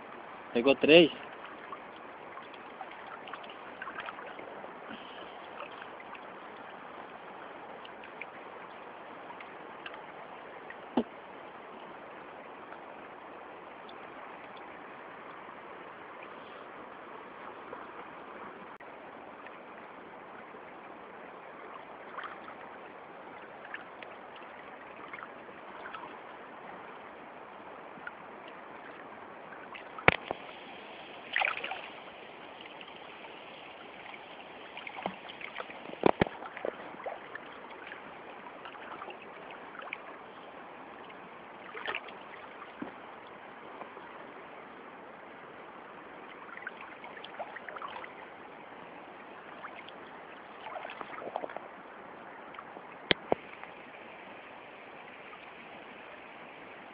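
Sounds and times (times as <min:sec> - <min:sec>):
river current rushing: 0:00.0 - 0:56.9
knocks and splashes: 0:02.4 - 0:06.3, 0:10.9 - 0:11.2, 0:29.8 - 0:30.5, 0:31.3 - 0:32.0, 0:34.7 - 0:38.0, 0:41.6 - 0:43.0, 0:50.6 - 0:51.6.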